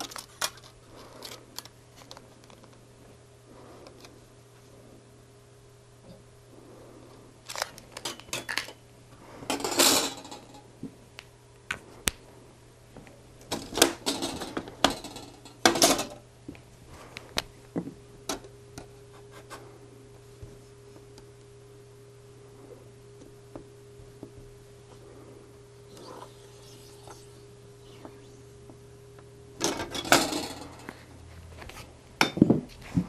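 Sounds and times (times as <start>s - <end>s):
film rustling: 7.5s - 8.8s.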